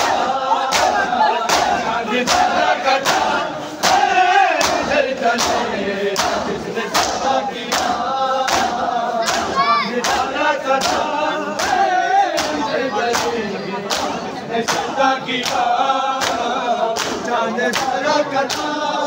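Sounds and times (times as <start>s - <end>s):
chest beating slaps: 0.0s - 18.8s
men chanting in unison: 0.0s - 19.0s.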